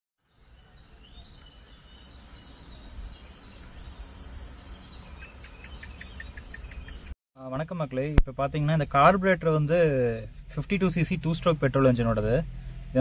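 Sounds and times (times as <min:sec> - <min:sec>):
birds chirping: 0:00.2 - 0:07.2
steady low rumble: 0:07.8 - 0:13.0.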